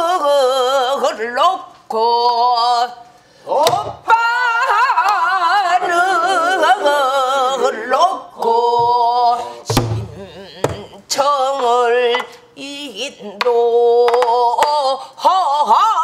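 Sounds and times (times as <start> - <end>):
woman singing with heavy vibrato: 0.0 - 16.0.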